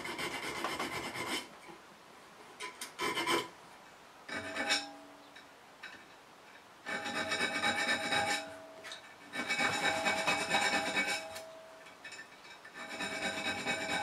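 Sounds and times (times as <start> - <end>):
file rasping on steel: 0.0 - 1.5, 2.9 - 3.6, 4.3 - 4.9, 6.8 - 8.6, 9.3 - 11.5, 12.7 - 14.0
metallic ringing note: 6.9 - 14.0.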